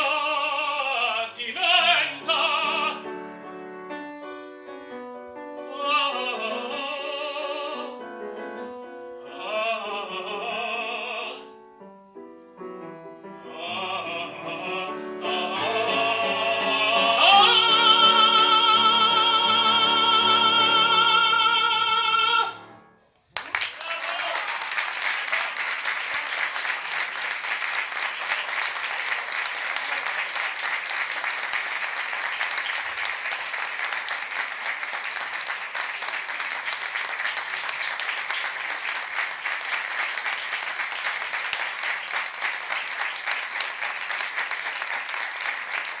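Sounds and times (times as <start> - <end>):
audience applauding: 23.3 - 46.0.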